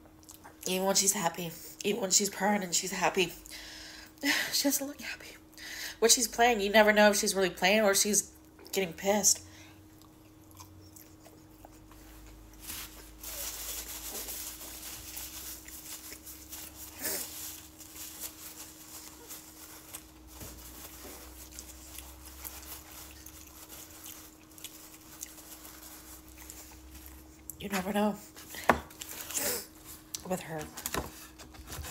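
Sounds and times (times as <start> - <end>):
faint steady hum: 0.0 - 31.9
person chewing: 9.8 - 13.2, 14.1 - 17.9, 18.6 - 27.6
paper napkin rustling: 12.0 - 31.9.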